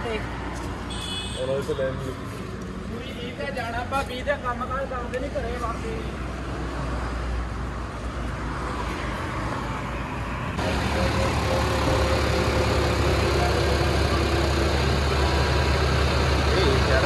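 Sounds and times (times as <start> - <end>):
tractor diesel engine running: 10.6 - 17.0.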